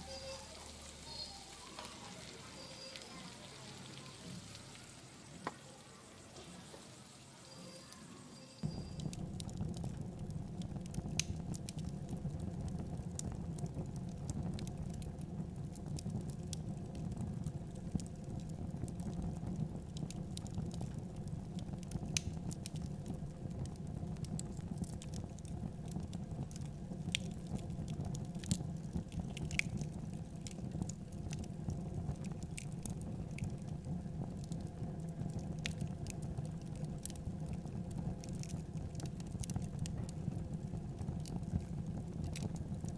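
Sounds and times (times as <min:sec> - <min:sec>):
drips sizzling on fire: 0:00.0 - 0:42.9
low fire rumble: 0:00.0 - 0:42.9
open fire crackling and popping: 0:00.0 - 0:42.9.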